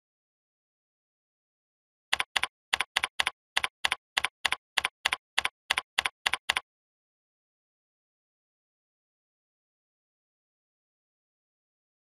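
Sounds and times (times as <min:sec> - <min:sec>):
computer keyboard typing: 0:02.1 - 0:06.6.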